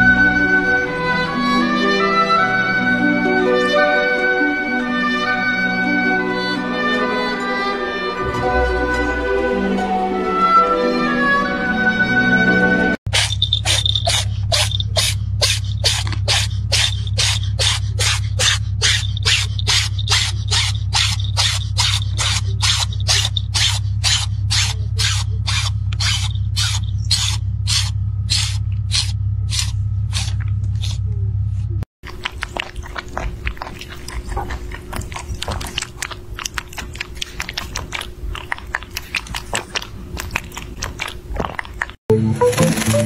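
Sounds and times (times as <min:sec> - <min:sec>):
steady low hum: 0:13.1 - 0:41.8
rabbit chewing crunchy fruit: 0:13.1 - 0:42.0.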